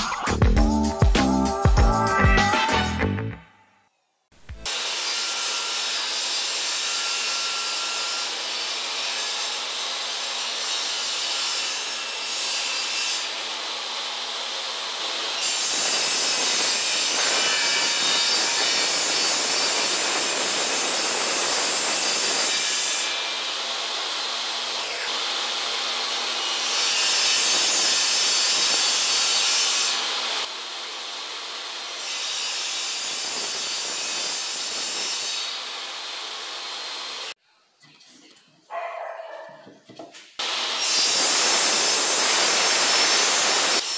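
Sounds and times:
table saw cutting wood: 0:04.6 - 0:37.4, 0:40.4 - 0:43.9
table saw whine: 0:04.7 - 0:11.9, 0:12.6 - 0:37.4, 0:40.4 - 0:43.9.

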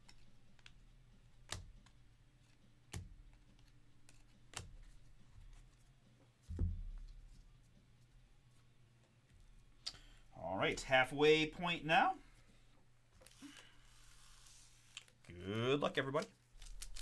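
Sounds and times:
trading cards snapping: 0:00.0 - 0:02.0, 0:02.9 - 0:04.9.

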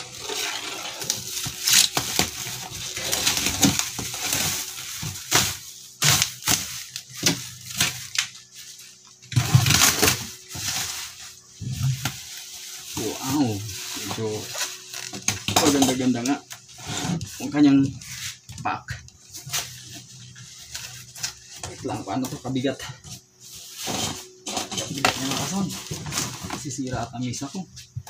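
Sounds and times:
plastic film crinkling and tearing: 0:00.0 - 0:18.4.

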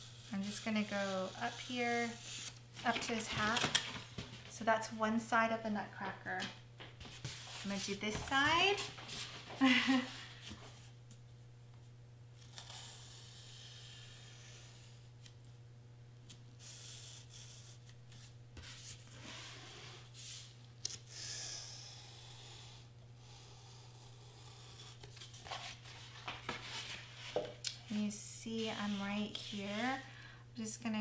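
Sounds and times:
steady low hum: 0:00.0 - 0:31.0
knife cutting foam board: 0:12.4 - 0:15.3, 0:16.6 - 0:20.4.

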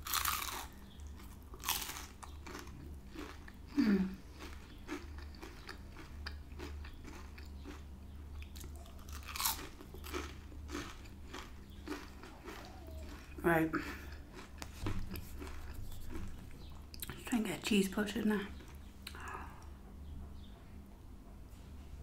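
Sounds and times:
crunching bites into onion ring: 0:00.0 - 0:03.6, 0:04.4 - 0:07.8, 0:08.4 - 0:13.4
chewing: 0:00.0 - 0:17.2.

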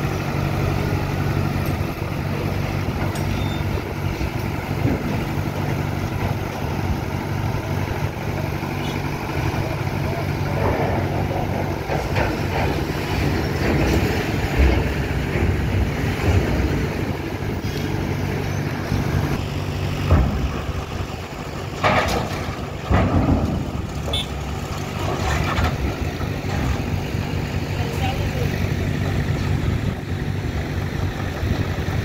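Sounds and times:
diesel engines running: 0:00.0 - 0:32.0
metal clanks and thuds: 0:10.6 - 0:17.9, 0:19.9 - 0:21.0, 0:21.7 - 0:24.2.

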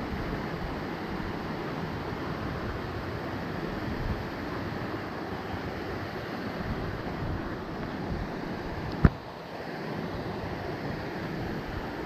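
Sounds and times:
creek water rushing: 0:00.0 - 0:12.0.

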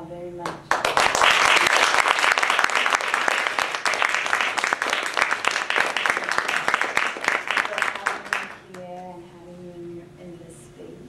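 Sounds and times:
audience applauding: 0:00.7 - 0:08.7.

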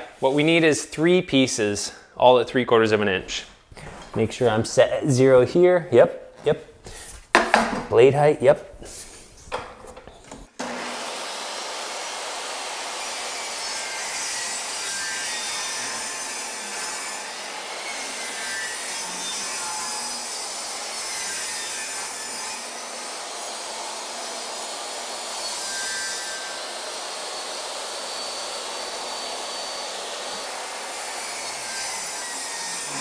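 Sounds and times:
table saw ripping board: 0:10.6 - 0:33.0.

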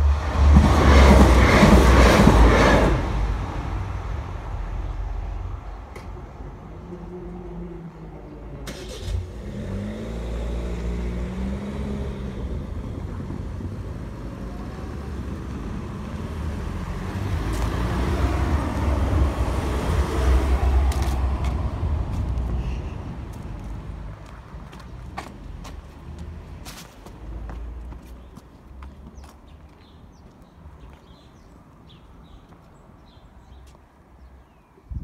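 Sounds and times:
car engines pulling away: 0:06.8 - 0:24.2
car passing close: 0:08.6 - 0:24.3.

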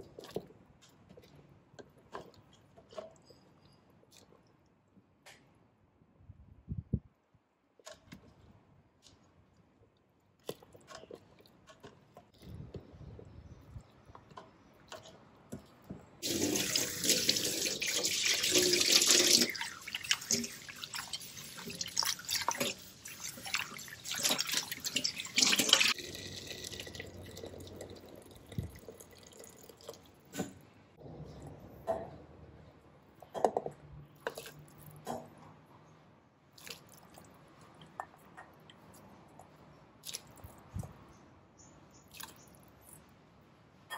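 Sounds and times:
tap water running into bowl: 0:16.2 - 0:22.8, 0:23.4 - 0:30.0
splashing: 0:16.2 - 0:28.0.

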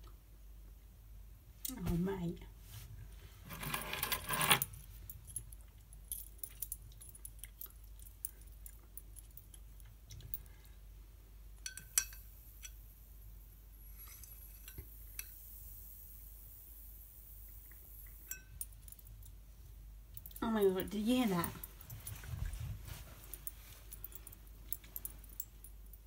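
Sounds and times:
keys clicking against glass: 0:04.3 - 0:10.4
faint high electric sizzle: 0:11.6 - 0:19.6.

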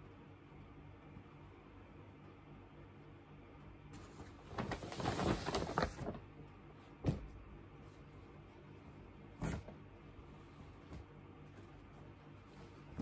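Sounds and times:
clothes and paper rustling: 0:04.0 - 0:06.3, 0:07.0 - 0:13.0.

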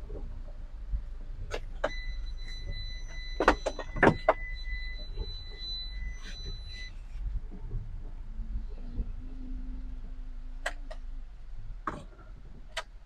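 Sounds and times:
low rumble: 0:04.4 - 0:12.7.

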